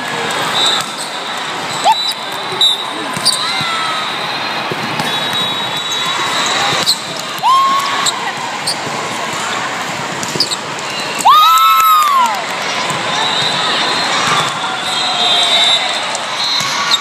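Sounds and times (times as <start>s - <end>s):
hubbub of voices and calls: 0.0s - 17.0s
high whistle-like tone: 5.0s - 6.5s.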